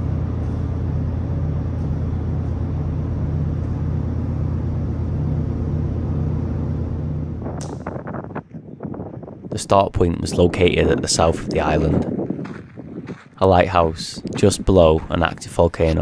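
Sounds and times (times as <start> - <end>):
low machinery rumble: 0.0 - 16.0.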